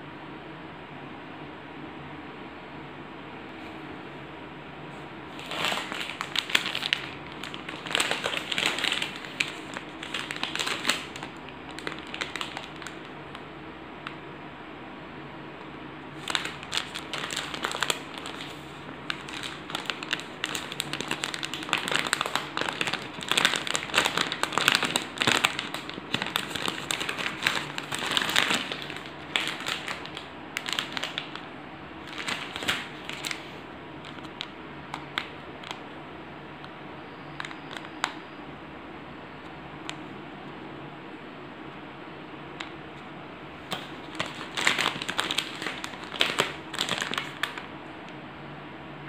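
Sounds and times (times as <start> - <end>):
plastic wrapper crinkling: 5.3 - 13.4, 16.1 - 35.8, 37.4 - 38.2, 43.6 - 47.8.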